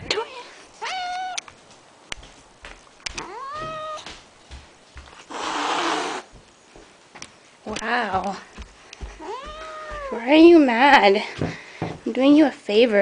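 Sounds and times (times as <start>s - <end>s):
cat meowing: 0.8s - 1.5s, 3.2s - 4.1s, 9.2s - 10.3s
cat hissing: 5.2s - 6.3s.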